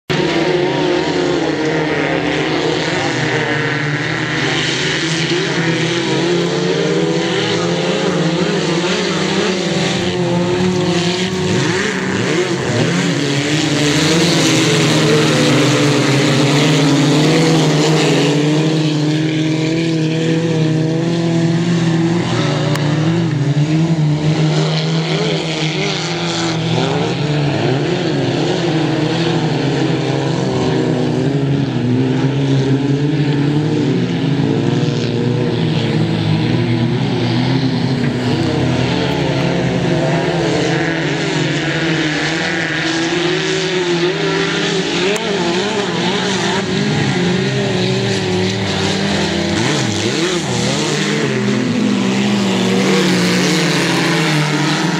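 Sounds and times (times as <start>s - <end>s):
race car engines revving: 0.0s - 54.9s.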